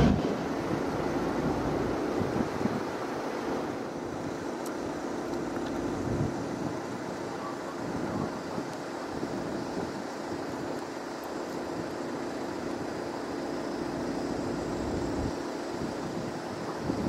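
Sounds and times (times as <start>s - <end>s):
wind rumbling on microphone: 0.0s - 10.8s, 14.7s - 17.0s
aircraft engine drone: 0.0s - 17.0s.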